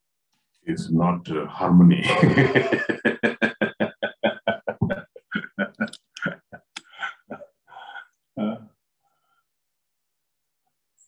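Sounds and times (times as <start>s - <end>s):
man laughing heartily: 2.0s - 8.0s.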